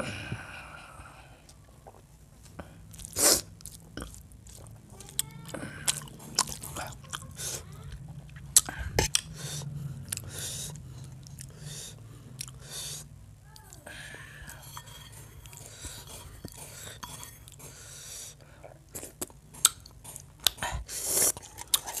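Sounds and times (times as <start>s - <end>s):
wet chewing and lip-smacking: 1.5s - 13.0s, 18.9s - 22.0s.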